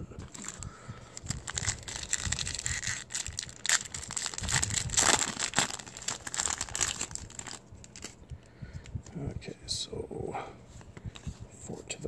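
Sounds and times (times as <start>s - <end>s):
foil wrapper crinkling: 0.3s - 8.2s.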